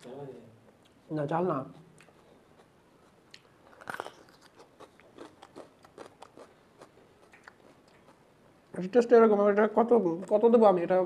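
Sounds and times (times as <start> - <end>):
crunchy chewing: 1.7 - 8.3
crisp crunch of biting pepper: 3.7 - 8.0.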